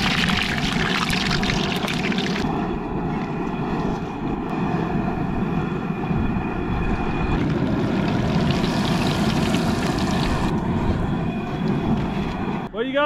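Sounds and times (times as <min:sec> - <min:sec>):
oil sizzling: 0:00.0 - 0:02.4, 0:07.8 - 0:10.5
gas burner running: 0:06.9 - 0:10.8.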